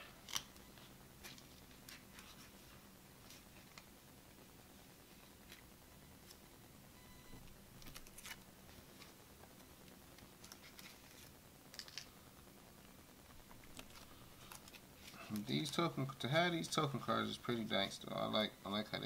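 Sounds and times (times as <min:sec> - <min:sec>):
cards and plastic rustling: 0:00.2 - 0:03.9, 0:07.8 - 0:09.2, 0:10.2 - 0:12.2, 0:13.5 - 0:17.6.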